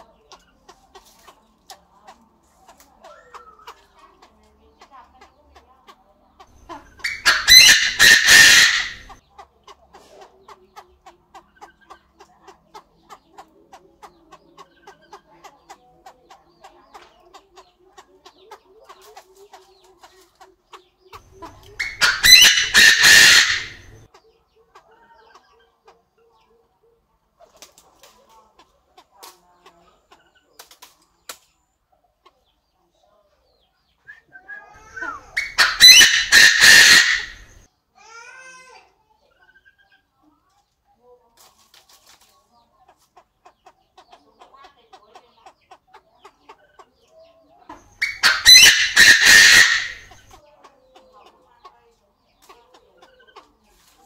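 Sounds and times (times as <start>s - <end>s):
partridge crowing: 6.9s - 9.2s, 21.8s - 24.1s, 34.8s - 37.6s, 47.8s - 50.3s.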